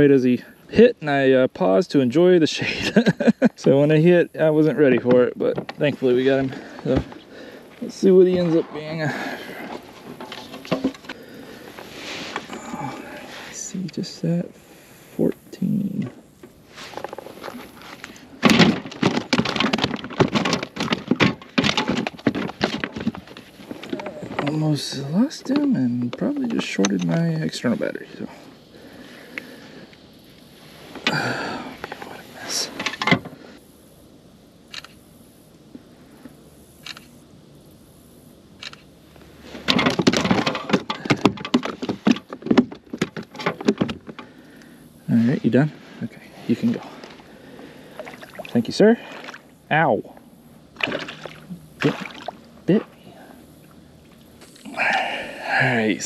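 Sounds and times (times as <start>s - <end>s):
fish thumping and splashing: 18.4s - 23.4s, 50.8s - 52.4s
fish flopping on kayak: 47.0s - 49.5s, 50.7s - 52.5s.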